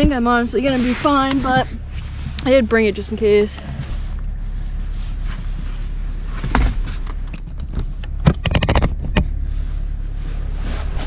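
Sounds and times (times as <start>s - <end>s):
bedding rustling: 0.0s - 7.3s, 9.3s - 11.0s
steady low hum: 0.0s - 11.0s.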